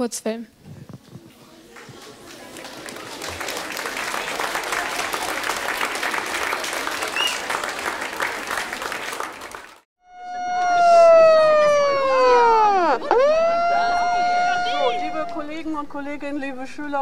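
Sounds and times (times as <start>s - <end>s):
audience applause: 1.7s - 9.9s
tone sliding down in pitch: 10.0s - 15.8s.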